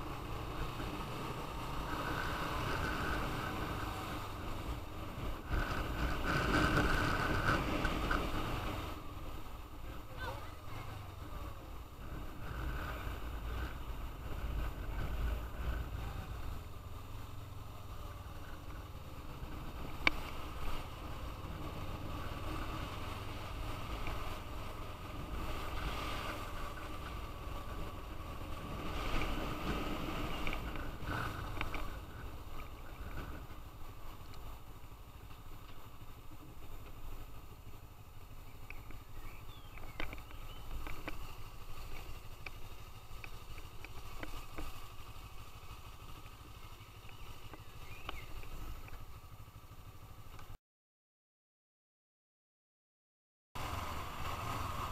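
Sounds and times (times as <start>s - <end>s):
motorcycle engine running: 0.0s - 50.6s, 53.6s - 54.9s
wind noise on microphone: 2.6s - 9.0s.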